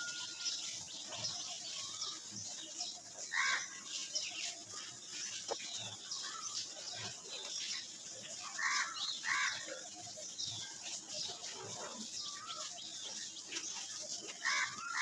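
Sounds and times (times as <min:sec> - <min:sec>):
soil trickling: 0:00.0 - 0:15.0
dirt crunching in metal bowl: 0:11.2 - 0:15.0.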